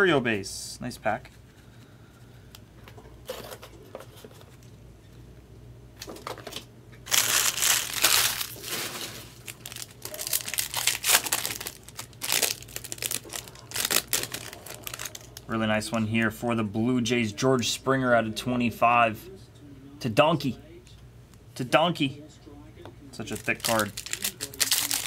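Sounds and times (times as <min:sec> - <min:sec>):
wrapper tearing and crinkling: 0:07.0 - 0:15.5, 0:23.3 - 0:25.0.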